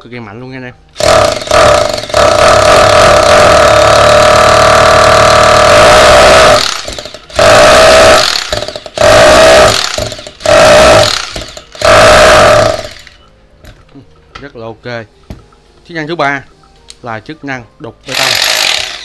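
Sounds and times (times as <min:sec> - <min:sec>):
rotary hammer drill motor running: 0:01.0 - 0:13.2, 0:18.1 - 0:19.0.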